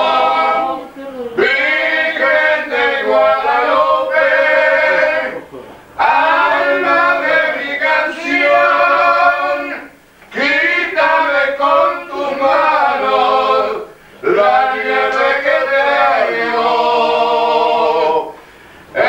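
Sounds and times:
men singing a cappella: 0.0s - 19.0s.

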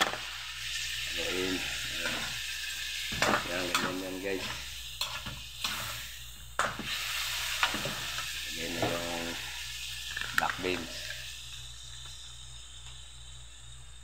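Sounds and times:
food sizzling: 0.0s - 14.0s
spatula scraping a wok: 1.7s - 6.2s.

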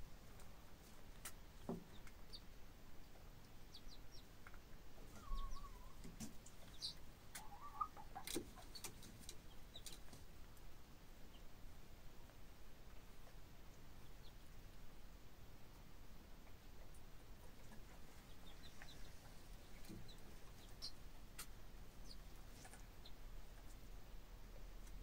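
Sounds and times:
chicks peeping: 0.2s - 25.0s
hen soft wavering calls: 5.1s - 6.0s, 6.7s - 8.7s.

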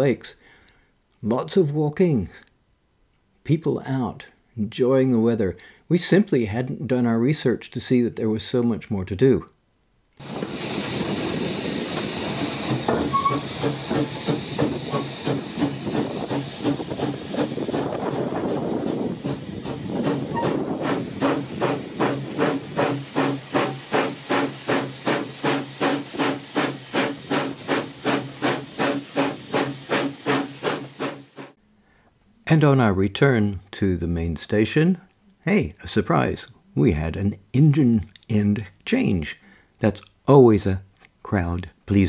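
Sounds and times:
steam locomotive chuffing: 10.2s - 31.6s.

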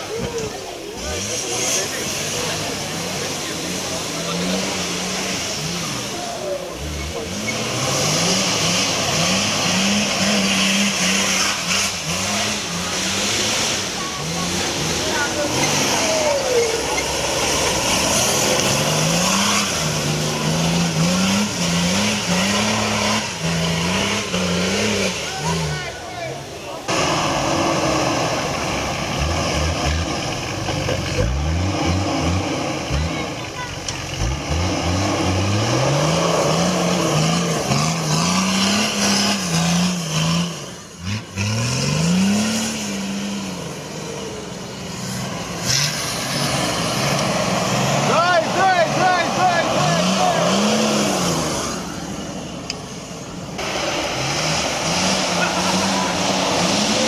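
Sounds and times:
off-road engine revving: 0.0s - 57.0s.

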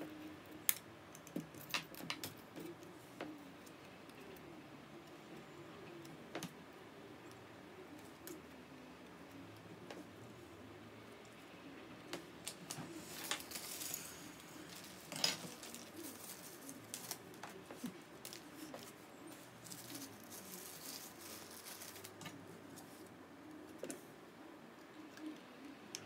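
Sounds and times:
small parts clicking and tapping: 0.5s - 4.4s.

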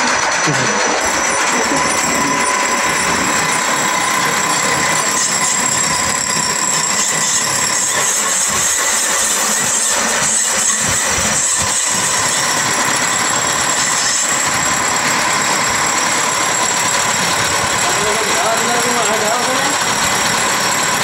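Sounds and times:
metal lathes whining: 0.0s - 21.0s.

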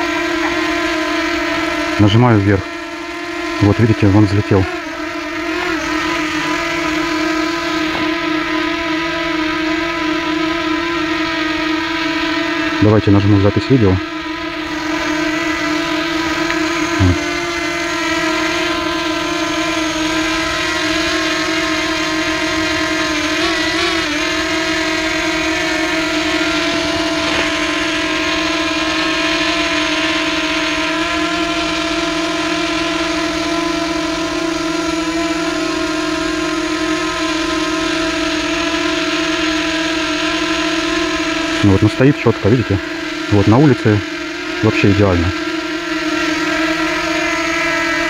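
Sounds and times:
drone propellers whining: 0.0s - 48.0s.

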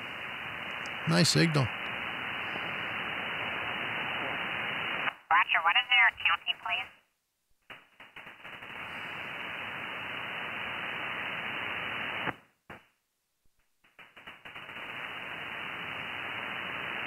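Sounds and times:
radio receiver hiss: 0.0s - 6.9s, 8.6s - 12.8s, 14.8s - 17.0s.

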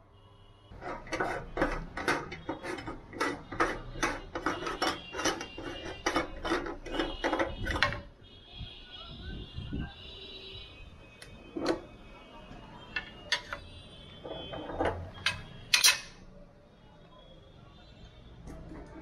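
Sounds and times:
meat grinder clacking: 0.8s - 8.0s.

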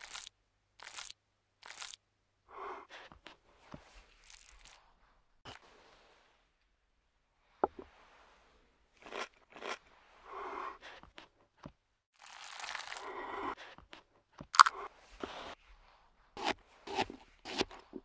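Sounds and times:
knife cutting on wooden board: 16.4s - 18.0s.

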